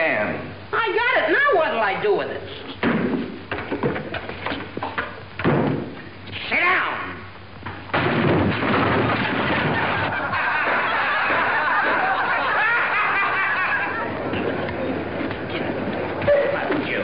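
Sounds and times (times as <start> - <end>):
crowd laughing: 9.1 - 16.6.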